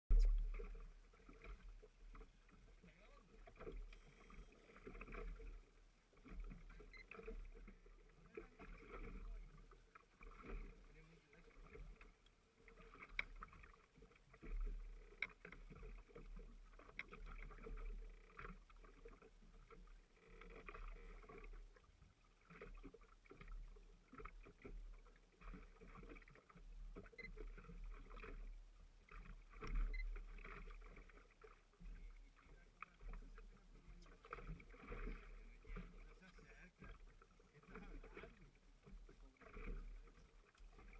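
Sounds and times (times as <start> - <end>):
low rumble: 0.1 - 0.6
water lapping against boat hull: 0.1 - 40.9.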